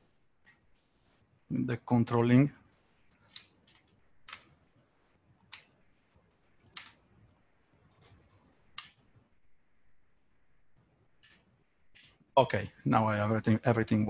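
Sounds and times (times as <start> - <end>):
computer mouse clicks: 3.1 - 4.6, 5.5 - 5.8, 6.6 - 9.1, 11.2 - 12.2.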